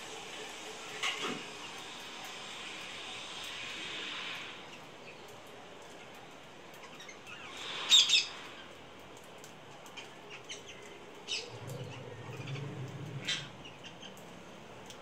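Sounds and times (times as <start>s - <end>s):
parakeets calling: 6.8s - 8.8s, 10.0s - 14.3s
low hum: 11.1s - 15.0s.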